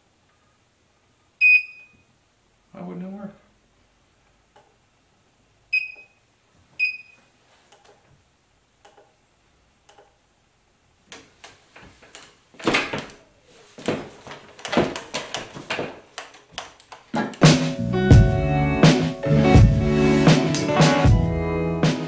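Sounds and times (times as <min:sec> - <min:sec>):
short high electronic beeps: 0:01.4 - 0:02.0
scooters knocking and rattling: 0:11.7 - 0:17.6.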